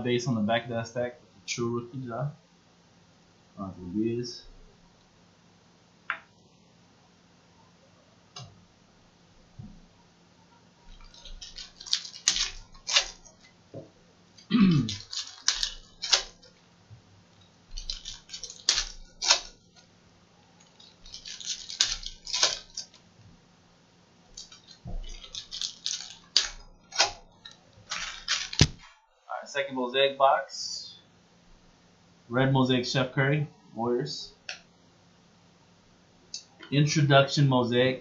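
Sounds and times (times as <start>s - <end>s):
cards being handled: 10.9s - 13.5s, 14.4s - 16.5s, 17.7s - 19.9s, 20.6s - 23.0s, 24.4s - 28.9s
foil wrappers crinkling and tearing: 10.9s - 13.5s, 14.4s - 16.6s, 17.7s - 19.9s, 20.6s - 23.0s, 24.3s - 28.9s.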